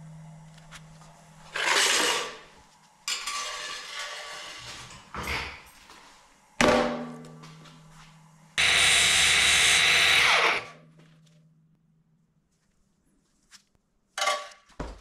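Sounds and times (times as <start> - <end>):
grinding hiss: 8.6 - 10.7
angle grinder motor hum: 8.6 - 10.8
loud grinder burst: 8.6 - 10.8.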